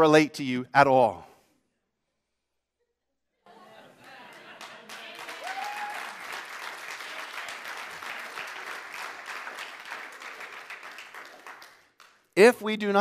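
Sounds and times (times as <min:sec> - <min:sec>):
congregation applauding: 0:03.9 - 0:13.0.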